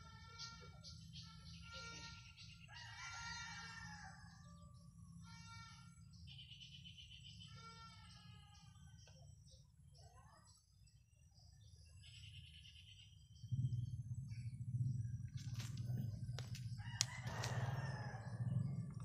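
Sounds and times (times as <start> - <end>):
low steady rumble: 10.9 - 19.0
rooster crowing: 16.8 - 19.0.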